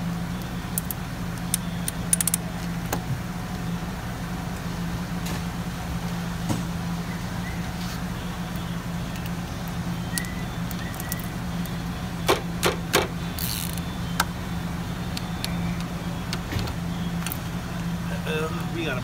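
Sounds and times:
steady low hum: 0.0 - 19.0
ratchet wrench clicking: 0.8 - 2.4, 13.4 - 13.8.

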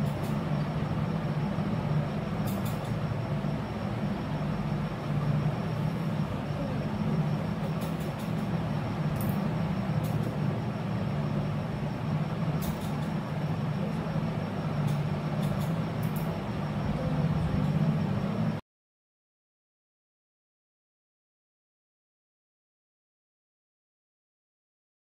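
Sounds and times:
low rumbling background noise: 0.0 - 18.6.

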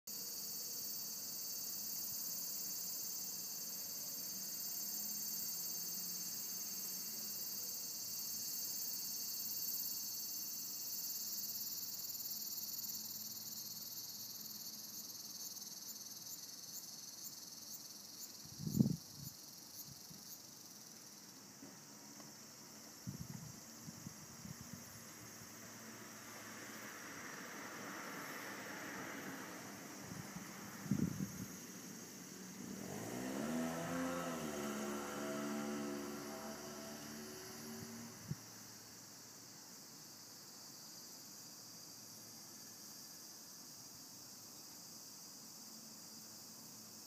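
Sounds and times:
regular insect chirps: 0.1 - 47.0
insects singing: 0.2 - 25.5.

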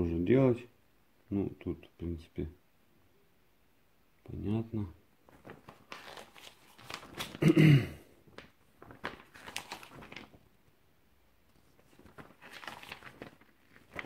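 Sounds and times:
paper rustling and crinkling: 5.2 - 7.6, 8.2 - 10.8, 11.4 - 14.0.

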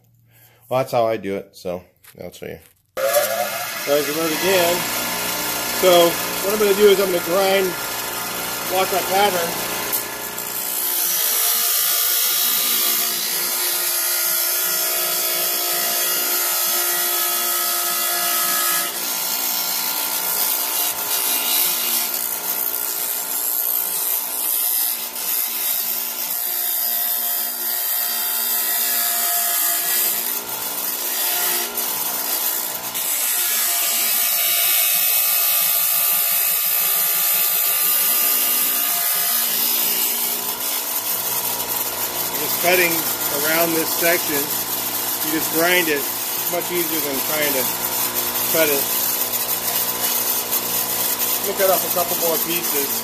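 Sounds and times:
bench grinder motor hum: 3.0 - 16.9, 34.9 - 53.0.

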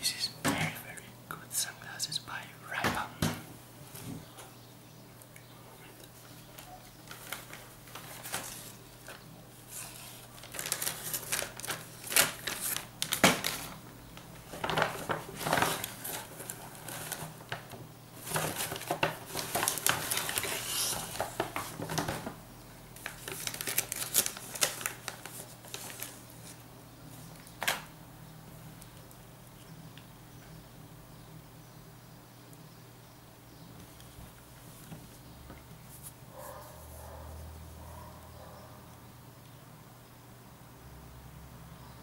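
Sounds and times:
aluminium foil crinkling: 6.4 - 22.4, 23.0 - 26.6
paper bag rustling: 7.0 - 22.4, 23.0 - 26.6.

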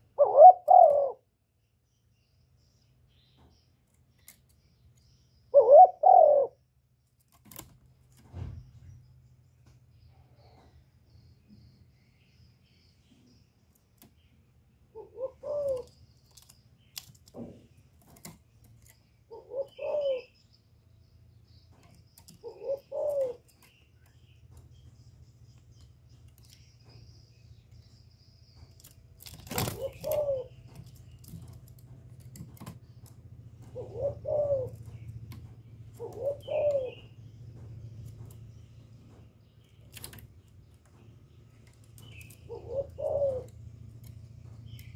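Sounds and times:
dove cooing: 0.0 - 1.3, 5.5 - 6.6, 14.9 - 16.0, 19.3 - 20.4, 22.3 - 23.7, 29.5 - 30.9, 33.6 - 37.1, 42.2 - 43.7
low steady hum: 0.0 - 44.9.

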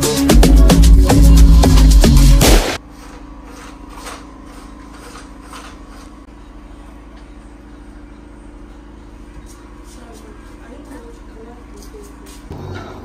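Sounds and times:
background music with a beat: 0.0 - 2.8.

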